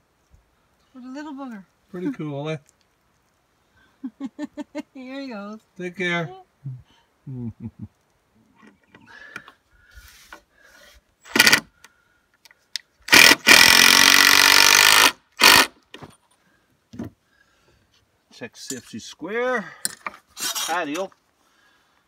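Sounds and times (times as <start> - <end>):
cordless drill driving a screw into wood: 11.3 - 11.7, 13.1 - 15.8.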